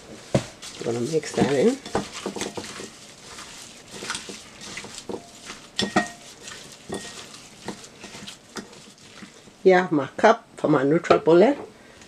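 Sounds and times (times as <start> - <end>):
raw meat squishing by hand: 0.5 - 9.6.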